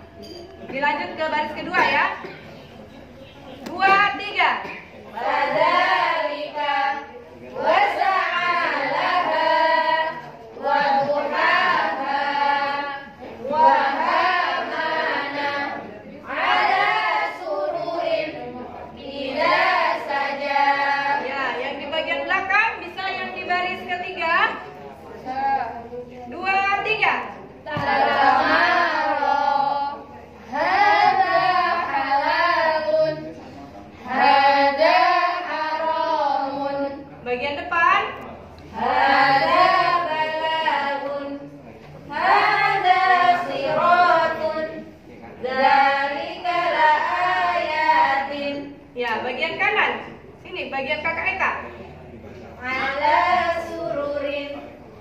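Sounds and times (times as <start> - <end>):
voices chanting in unison: 5.1 - 21.9, 27.6 - 33.4, 34.0 - 37.1, 38.7 - 48.8, 52.6 - 54.7.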